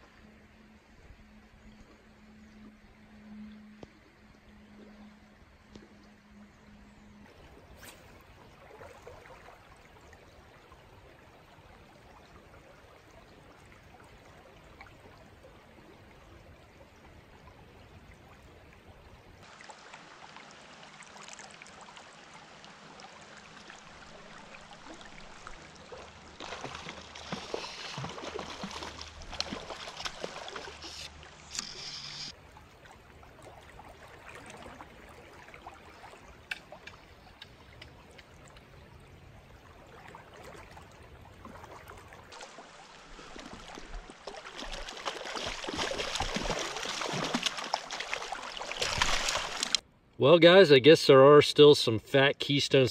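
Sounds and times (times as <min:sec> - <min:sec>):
creek current rushing: 0:19.4 - 0:32.4, 0:42.3 - 0:49.8
fish splashing at surface: 0:26.4 - 0:32.3, 0:42.4 - 0:49.8.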